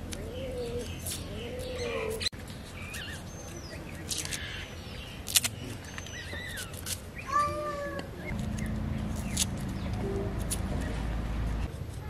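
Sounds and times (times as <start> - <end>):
birds chirping: 0.0 - 11.8
low steady hum: 8.1 - 12.0.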